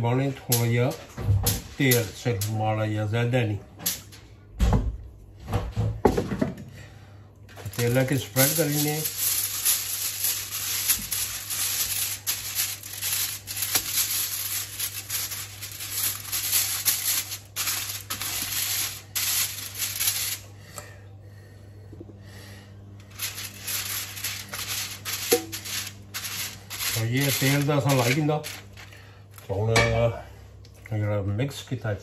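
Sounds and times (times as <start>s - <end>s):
brush strokes on foil: 7.5s - 20.5s, 23.1s - 29.2s
foil crinkling: 7.5s - 20.5s, 23.1s - 29.5s.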